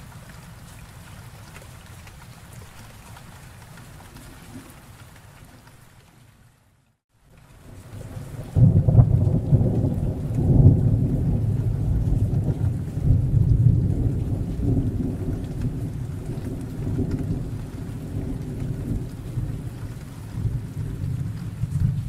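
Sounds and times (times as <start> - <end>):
rain falling: 0.0 - 22.0
thunder clap and rumble: 7.6 - 22.0.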